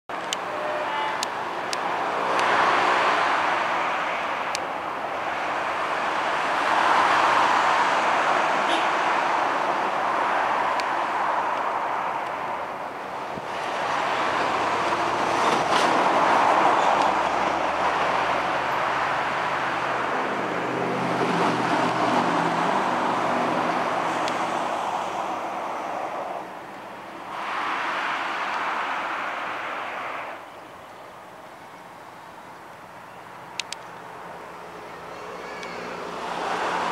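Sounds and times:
diesel locomotive engine drone: 0:00.1 - 0:36.9
train rolling noise: 0:09.2 - 0:30.4
sharp metallic clicks: 0:33.6 - 0:34.0.

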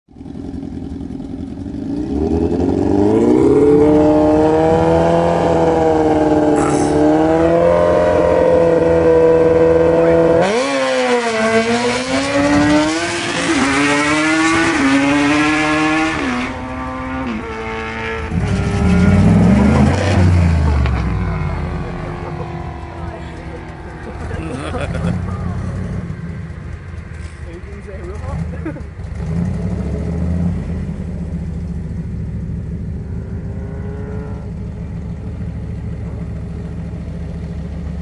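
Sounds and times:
deep engine rumble: 0:00.1 - 0:10.4, 0:11.2 - 0:38.0
pickup truck engine revving: 0:01.9 - 0:27.4.

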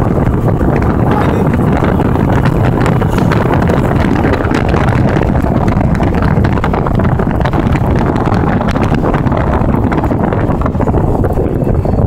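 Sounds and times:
road and engine rumble: 0:00.0 - 0:12.0
wind buffeting microphone: 0:00.0 - 0:12.0.

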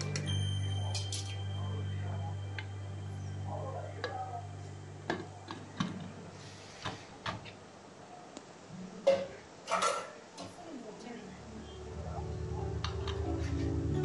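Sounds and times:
low hum: 0:00.0 - 0:06.7.

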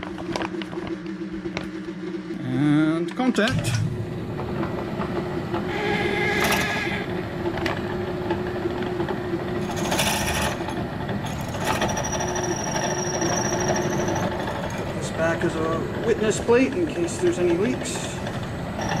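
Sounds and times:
drill press motor hum: 0:03.5 - 0:19.0
drill bit grinding into stone: 0:09.6 - 0:14.9, 0:18.8 - 0:19.0.

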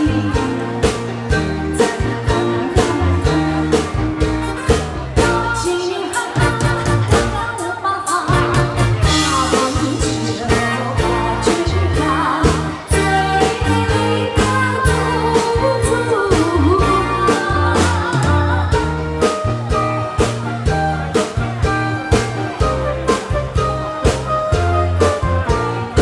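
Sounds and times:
person singing a pop song: 0:00.0 - 0:04.2, 0:05.2 - 0:20.0
bass line: 0:00.0 - 0:07.6, 0:08.2 - 0:26.0.

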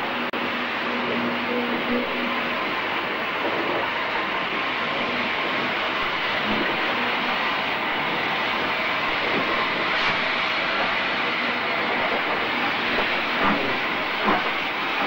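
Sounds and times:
train knocks: 0:12.0 - 0:15.0.

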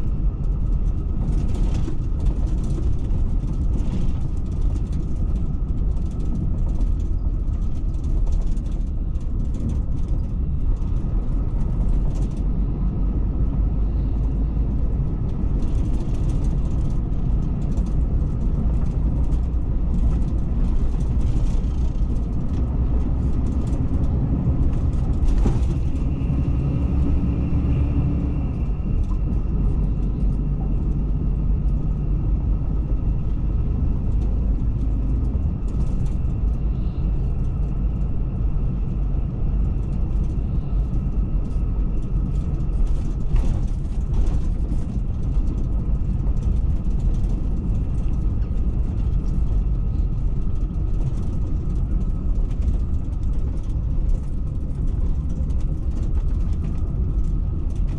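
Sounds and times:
coach engine and tyres rumbling: 0:00.0 - 0:57.9
light clicks and rattles: 0:00.5 - 0:12.5, 0:15.2 - 0:27.1, 0:34.1 - 0:38.0, 0:39.6 - 0:57.9.

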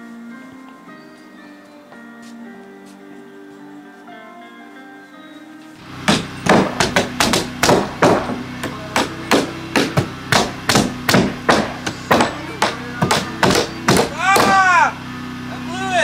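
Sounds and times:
hammer blows on plywood: 0:05.9 - 0:14.9.

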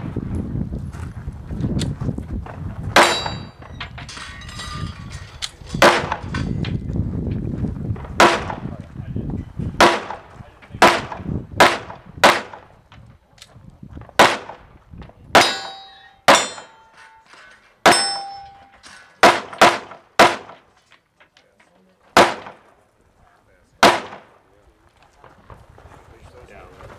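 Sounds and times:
gunshots: 0:03.0 - 0:03.5, 0:05.8 - 0:06.4, 0:08.2 - 0:08.7, 0:09.8 - 0:12.7, 0:14.2 - 0:14.6, 0:15.4 - 0:16.8, 0:19.2 - 0:20.7, 0:22.2 - 0:22.7, 0:23.8 - 0:24.4
steel target ringing: 0:03.0 - 0:05.0, 0:15.4 - 0:19.9.

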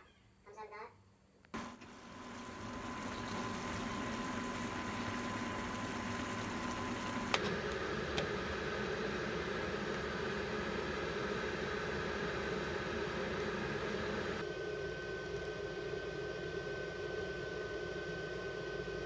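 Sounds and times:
food simmering in a frying pan: 0:01.6 - 0:14.4
steady hum: 0:01.6 - 0:17.8.

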